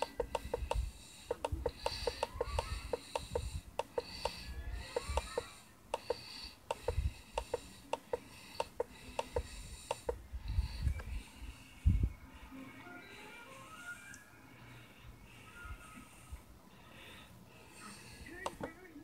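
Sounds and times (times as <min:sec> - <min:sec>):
sharp clicks: 0:00.0 - 0:10.2.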